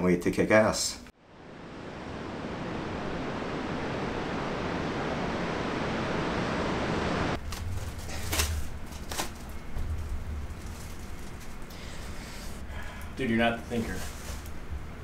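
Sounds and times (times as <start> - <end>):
ocean surf washing on beach: 1.3 - 7.4.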